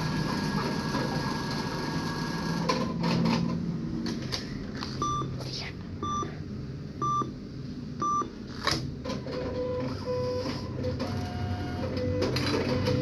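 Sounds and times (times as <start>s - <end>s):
cash dispenser whirring: 0.0s - 3.8s, 8.5s - 13.0s
atm beeping: 5.0s - 5.4s, 6.0s - 6.4s, 7.0s - 7.4s, 8.0s - 8.4s, 9.2s - 13.0s.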